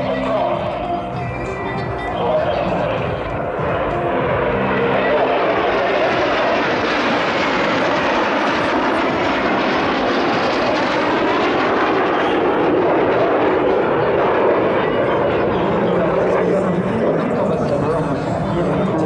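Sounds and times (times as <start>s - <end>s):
jets passing overhead: 0.0s - 19.0s.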